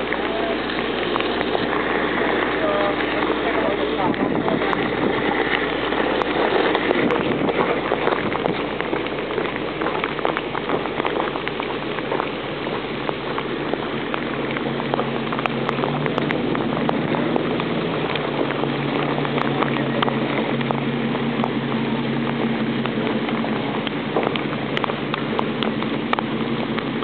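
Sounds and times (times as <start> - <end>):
drops ticking: 0.0 - 27.0
heavy rain hissing: 0.0 - 27.0
low steady hum: 0.0 - 27.0.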